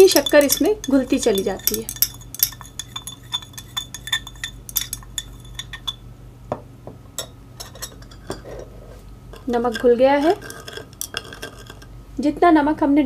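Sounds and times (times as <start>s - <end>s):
spoon clinking in glass: 0.0s - 6.0s, 7.2s - 8.6s, 9.4s - 11.9s.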